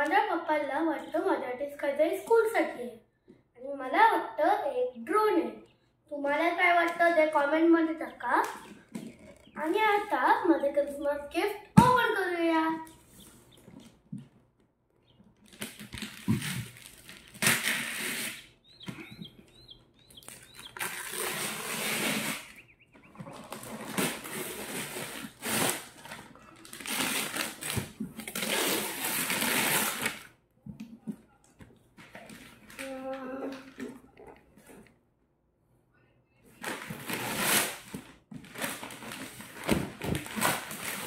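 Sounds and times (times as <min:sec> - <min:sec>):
wrapping paper ripping: 0:15.4 - 0:18.6, 0:20.2 - 0:22.6, 0:23.3 - 0:30.3, 0:36.6 - 0:41.0
adhesive tape pulled away: 0:15.5 - 0:18.5, 0:20.3 - 0:22.5, 0:23.5 - 0:30.3.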